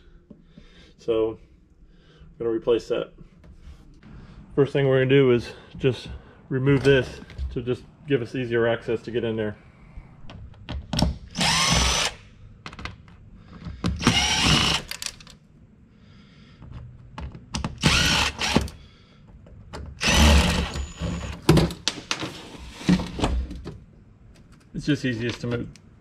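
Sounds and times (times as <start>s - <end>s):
cordless drill backing out screws: 13.9s - 15.3s, 17.8s - 18.8s, 20.0s - 21.6s.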